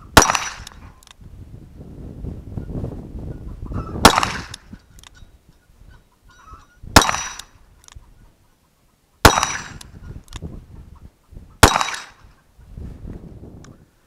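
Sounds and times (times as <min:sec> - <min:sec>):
revolver shots: 0:00.2 - 0:00.8, 0:04.0 - 0:04.7, 0:06.9 - 0:07.5, 0:09.2 - 0:10.0, 0:11.6 - 0:12.2.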